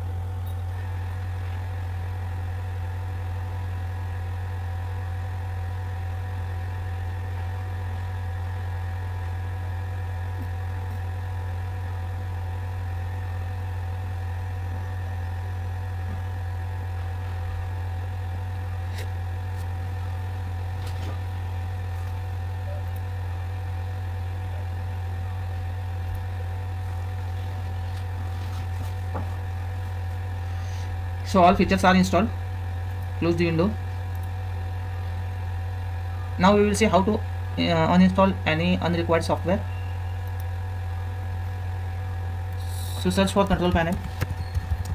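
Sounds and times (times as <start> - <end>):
low electrical hum: 0.0 - 44.9
faint high whining tones: 19.8 - 44.9.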